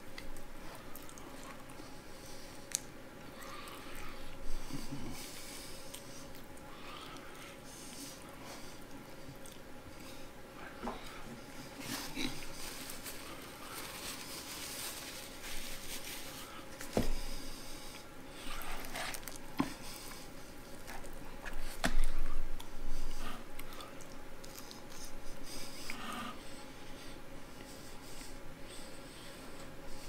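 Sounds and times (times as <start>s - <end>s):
chewing and mouth sounds: 0.1s - 1.9s, 2.5s - 10.1s, 23.5s - 25.2s.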